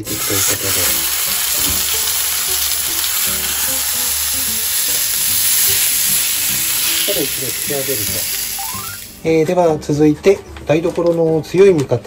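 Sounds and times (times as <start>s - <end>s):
meat sizzling in a frying pan: 0.0s - 9.2s.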